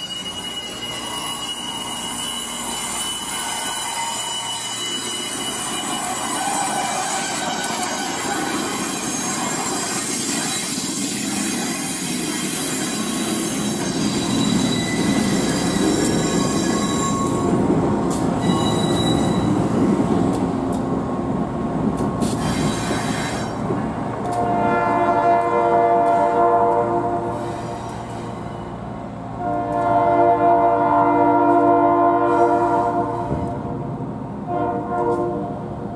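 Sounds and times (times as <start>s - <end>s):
train wheels squealing on rails: 0.0s - 20.5s, 22.0s - 24.5s, 25.9s - 30.0s, 32.3s - 33.6s
diesel locomotive engine rumbling: 0.0s - 35.9s
locomotive air horn chord: 24.2s - 27.6s, 29.4s - 33.4s, 34.5s - 35.6s.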